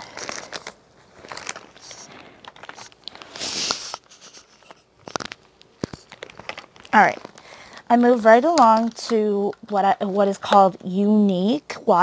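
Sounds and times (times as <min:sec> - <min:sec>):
rustling: 0:00.0 - 0:10.6
makeup items clicking and knocking: 0:05.0 - 0:10.7.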